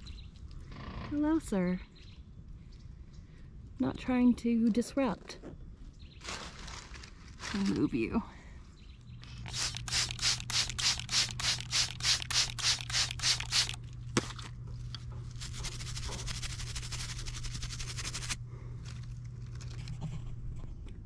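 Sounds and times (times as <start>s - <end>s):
spray bottle squirting: 9.4s - 13.8s, 15.4s - 18.4s
brush scrubbing rock: 15.3s - 18.4s.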